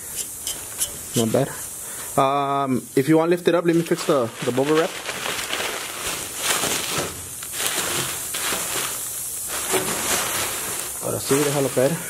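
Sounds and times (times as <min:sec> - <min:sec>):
bubble wrap crinkling: 0:03.1 - 0:12.0.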